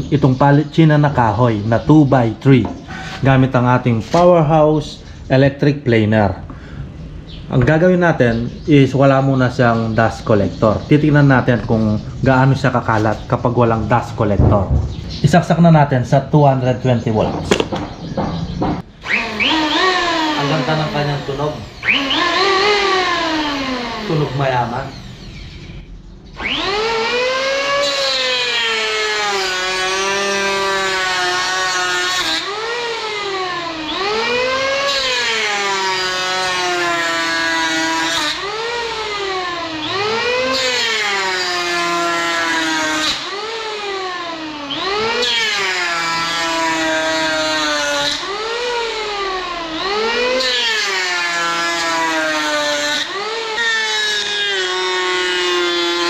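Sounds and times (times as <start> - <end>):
electric hand planer whining: 19.0 - 25.6, 26.4 - 56.0.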